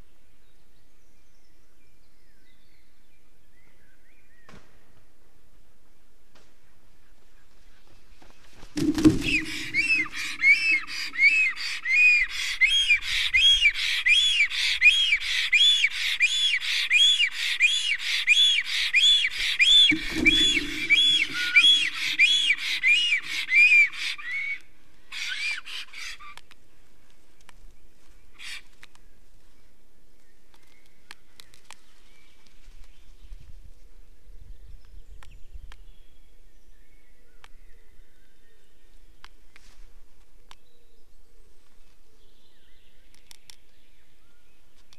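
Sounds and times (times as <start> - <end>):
birds landing on nest thump: 8.6 - 10.8
wheezy whistling bird calls: 9.2 - 24.6.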